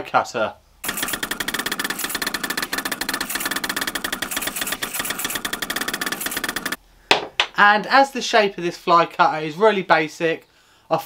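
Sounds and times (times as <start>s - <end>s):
three-d printer stepper motors ticking: 0.8s - 6.8s.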